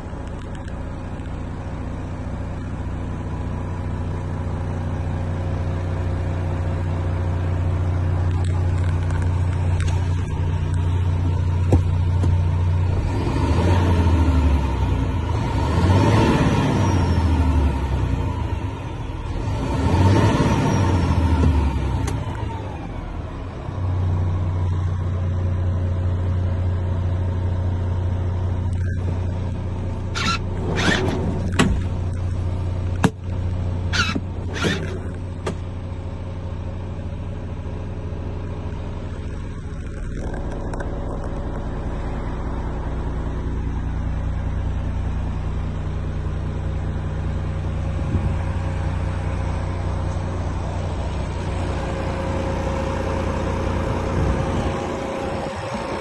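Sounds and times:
diesel truck engine idling: 0:00.0 - 0:13.1, 0:16.6 - 0:56.0
short clunks and rustles: 0:08.4 - 0:12.5, 0:30.2 - 0:35.7.

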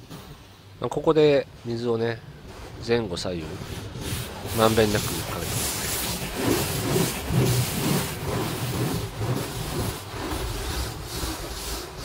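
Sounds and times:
water jets spraying car: 0:03.8 - 0:12.0.

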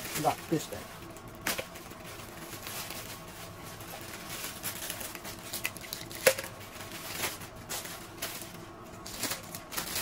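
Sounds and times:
plastic bags rustling: 0:00.0 - 0:10.0.

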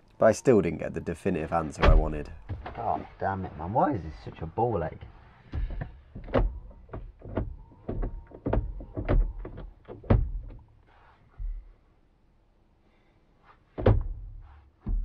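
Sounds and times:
hands drumming on steering wheel: 0:14.8 - 0:15.0.

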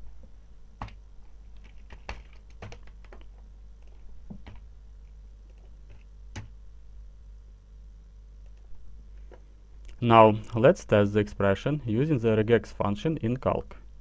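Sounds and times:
keyboard keys clicking: 0:01.6 - 0:04.6.

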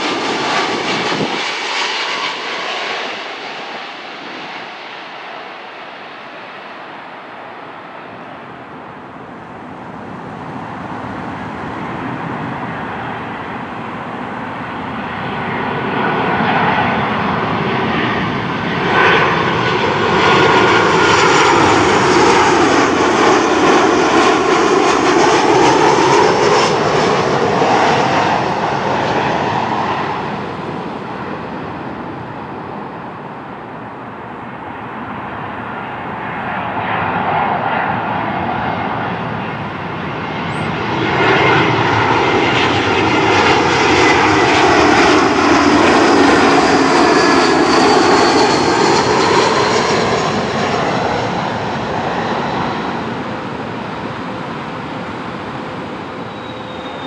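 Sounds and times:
jet airliners passing overhead: 0:00.0 - 0:57.0.

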